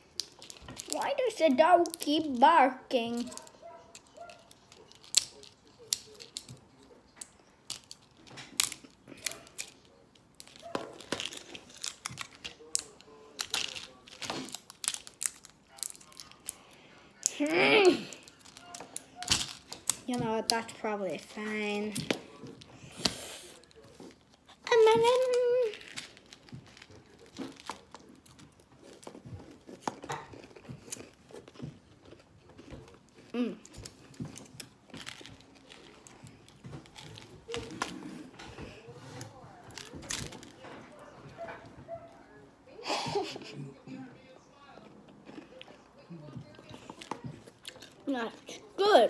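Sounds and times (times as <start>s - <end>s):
candies clicking in plastic tube: 0.0s - 2.4s, 3.1s - 20.7s.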